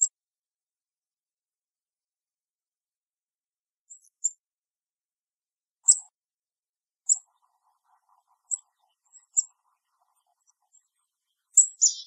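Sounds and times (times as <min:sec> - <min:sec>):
chickadee chirps: 0:07.1 - 0:12.0.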